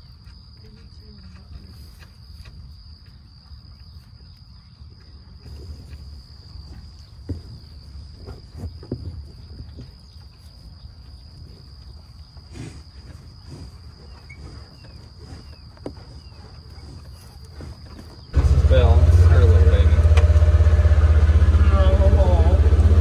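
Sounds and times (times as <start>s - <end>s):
bison tearing and chewing grass: 0.0s - 4.4s, 5.0s - 19.2s.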